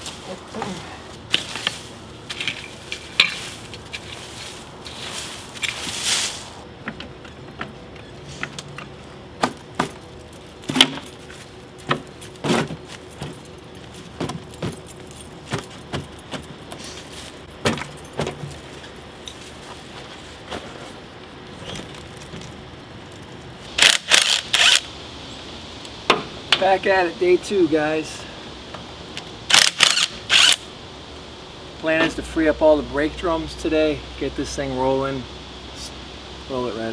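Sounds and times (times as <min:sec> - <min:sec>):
shovel scraping into dirt: 0:01.3 - 0:06.6
keys jingling: 0:09.9 - 0:19.4.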